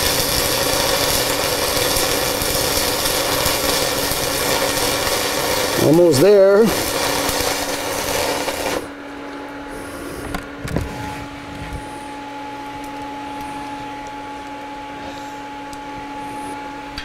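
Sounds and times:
welding arc crackling: 0:00.0 - 0:09.0
steady electrical hum: 0:00.0 - 0:17.0.

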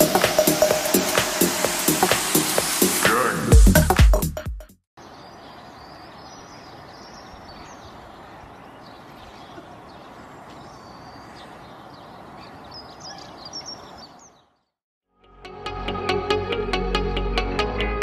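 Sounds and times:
outdoor background noise: 0:05.0 - 0:14.6
faint bird chirps: 0:05.0 - 0:14.7.

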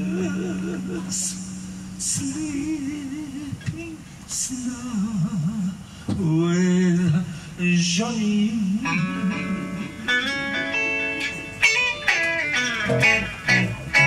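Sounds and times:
person singing with vibrato: 0:00.0 - 0:10.3.

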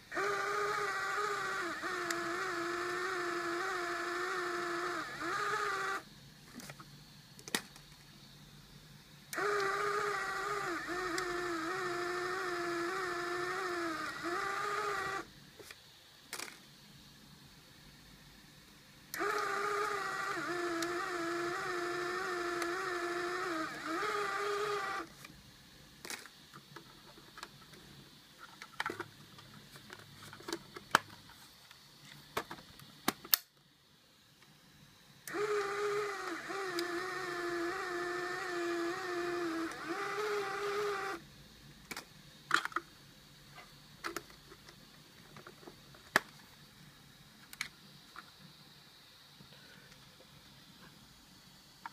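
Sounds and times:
camera motor whining: 0:00.1 - 0:06.1, 0:09.3 - 0:15.3, 0:19.2 - 0:25.1, 0:35.3 - 0:41.2.

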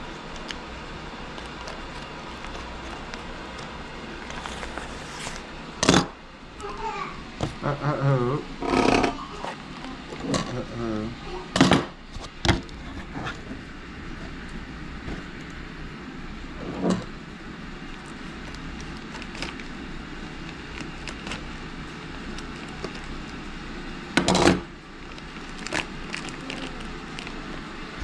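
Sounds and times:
plastic rustle: 0:00.0 - 0:05.5, 0:17.8 - 0:23.6, 0:24.9 - 0:28.0
low room hum: 0:00.0 - 0:28.0
plastic package crinkling: 0:00.1 - 0:05.5, 0:17.8 - 0:23.6, 0:24.9 - 0:27.9.

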